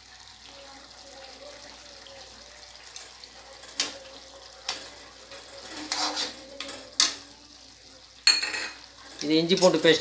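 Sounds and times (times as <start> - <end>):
chicken sizzling in a pan: 0.0 - 10.0
spoon clinking against metal pan: 8.2 - 8.8.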